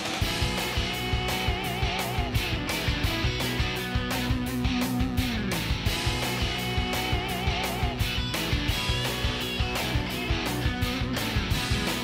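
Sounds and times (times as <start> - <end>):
drum beat: 0.0 - 12.0
electric guitar: 0.0 - 12.0.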